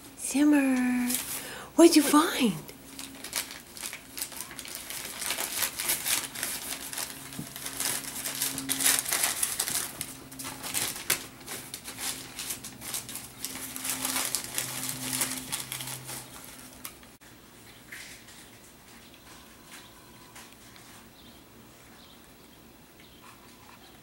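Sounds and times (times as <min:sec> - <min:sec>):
paper crinkling and rustling: 0:00.7 - 0:01.5, 0:02.8 - 0:17.2.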